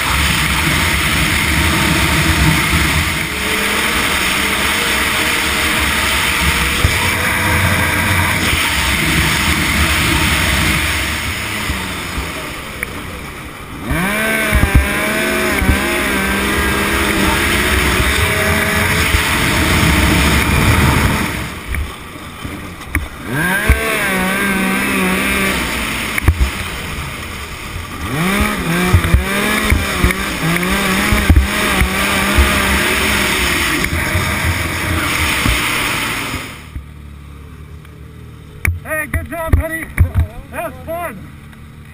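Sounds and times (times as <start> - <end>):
track bumps: 0.0 - 36.9, 38.6 - 41.9
snowmobile engine racing: 0.0 - 41.9
wind noise: 13.8 - 24.2.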